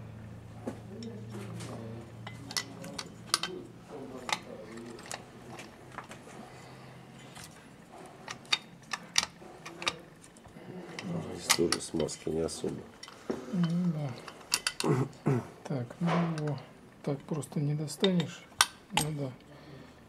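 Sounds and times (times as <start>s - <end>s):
metal parts clicking and clinking: 2.2s - 6.2s, 8.2s - 14.9s, 18.0s - 19.3s.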